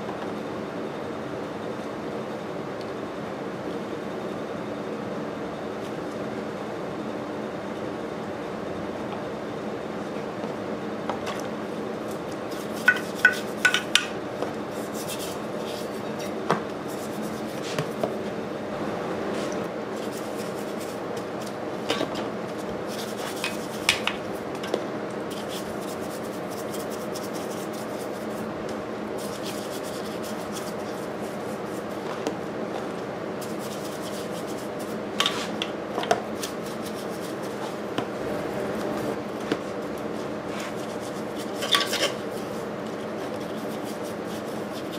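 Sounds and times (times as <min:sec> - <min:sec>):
steady hum: 0:00.0 - 0:44.9
brush scrubbing metal: 0:12.5 - 0:13.9, 0:14.7 - 0:17.8, 0:20.0 - 0:21.0, 0:22.8 - 0:24.0, 0:25.3 - 0:28.4, 0:29.2 - 0:32.0, 0:33.4 - 0:35.6, 0:36.4 - 0:37.7, 0:40.5 - 0:44.9.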